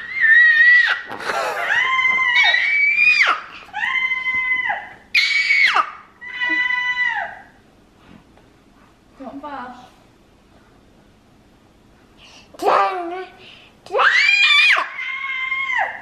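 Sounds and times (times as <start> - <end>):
baby screeching: 0.0 - 1.1, 1.7 - 7.4, 14.0 - 16.0.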